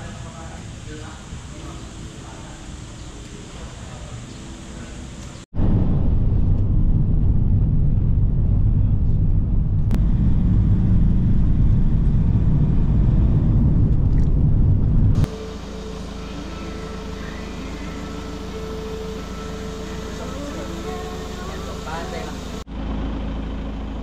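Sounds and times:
steady hum with high tone: 0:00.0 - 0:23.4
engine rumbling: 0:00.0 - 0:24.0.

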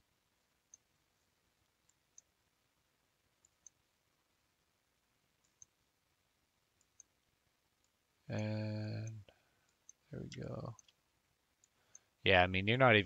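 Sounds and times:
computer mouse clicks: 0:00.7 - 0:00.9, 0:01.8 - 0:02.4, 0:03.4 - 0:03.8, 0:05.4 - 0:05.8, 0:06.8 - 0:07.2, 0:07.8 - 0:11.0, 0:11.6 - 0:12.1.

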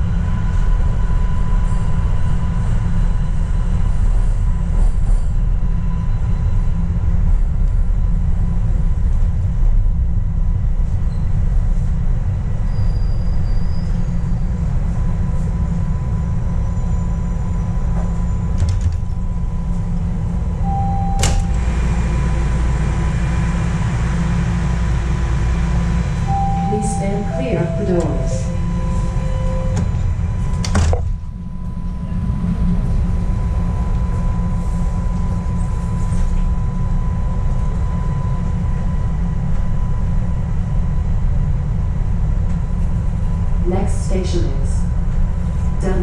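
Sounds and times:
subway train rumble: 0:00.0 - 0:46.0
faint steady whine: 0:19.0 - 0:41.1
short beep: 0:20.6 - 0:21.6, 0:26.3 - 0:30.0.

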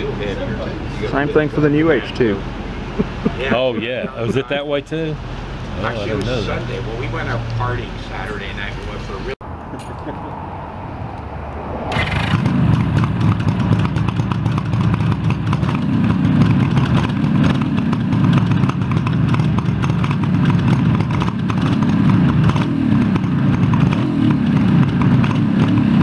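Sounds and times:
motorcycle engine revving: 0:10.1 - 0:26.0.

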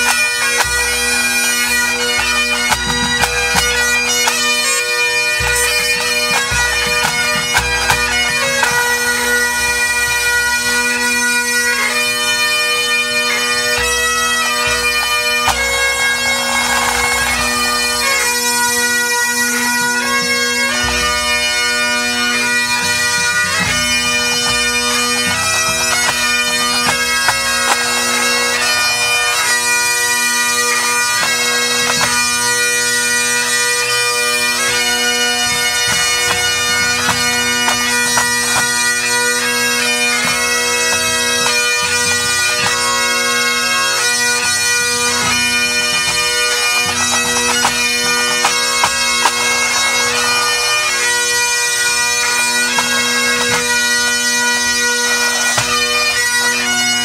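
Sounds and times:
bagpipe drones: 0:00.0 - 0:57.0
bagpipes playing a tune: 0:00.0 - 0:57.0.

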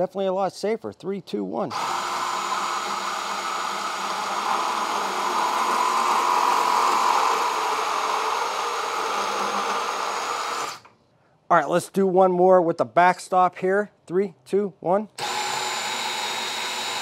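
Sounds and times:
bandsaw motor whine: 0:01.7 - 0:10.9, 0:15.2 - 0:17.0.

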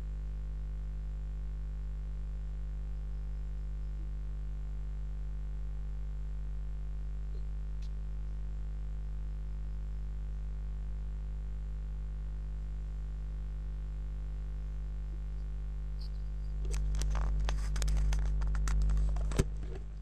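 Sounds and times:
low electrical hum: 0:00.0 - 0:20.0
rapid clicks and rustles: 0:16.0 - 0:20.0.

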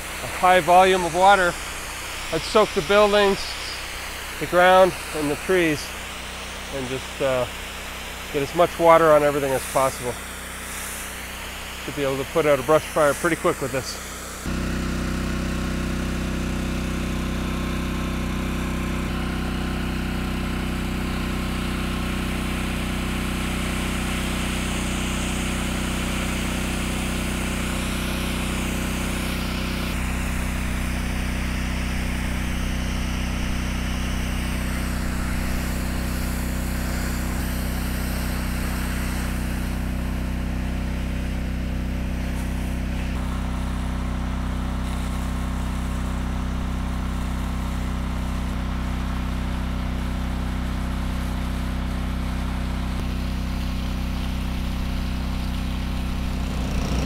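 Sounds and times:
pump engine running: 0:00.0 - 0:57.0
water jet spraying: 0:00.0 - 0:57.0.

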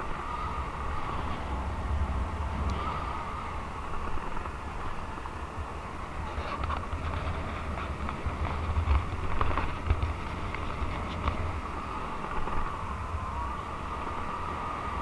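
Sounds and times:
scooter engine running: 0:00.0 - 0:15.0
wind buffeting microphone: 0:00.0 - 0:15.0.

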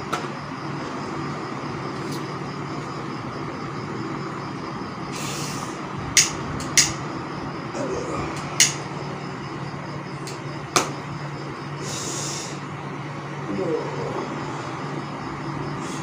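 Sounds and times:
steady low hum: 0:00.0 - 0:16.0
sharp clicks: 0:06.2 - 0:07.0, 0:08.4 - 0:08.8.

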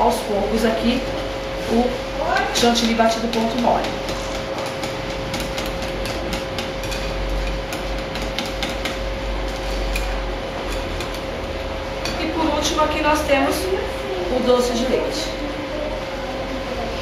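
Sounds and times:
steady background hum: 0:00.0 - 0:17.0
whisk scraping glass bowl: 0:01.7 - 0:13.3.

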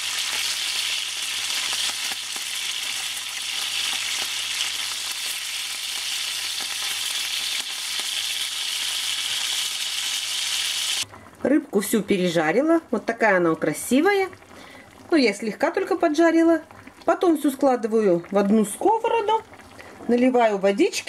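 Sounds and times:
fish sizzling in a pan: 0:00.0 - 0:11.1.

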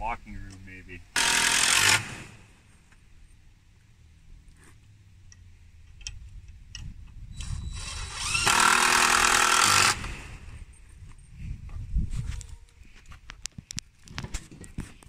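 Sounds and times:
cordless drill whine: 0:01.2 - 0:02.1, 0:07.4 - 0:10.4.

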